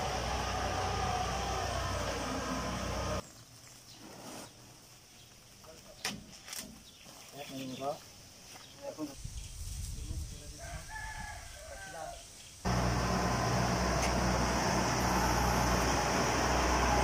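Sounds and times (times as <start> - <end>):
combine harvester diesel engine running: 0.0 - 3.2, 12.7 - 17.0
rooster crowing: 10.6 - 12.2.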